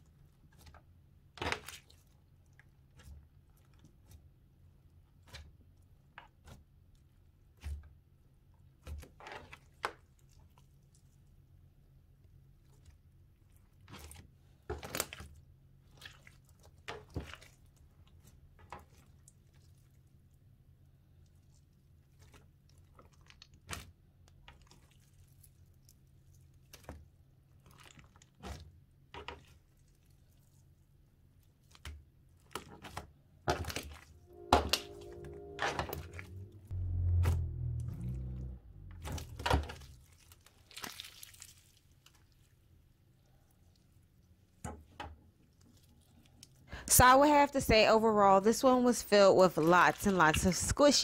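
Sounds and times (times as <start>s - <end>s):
slime popping and squelching: 36.8s - 42.4s.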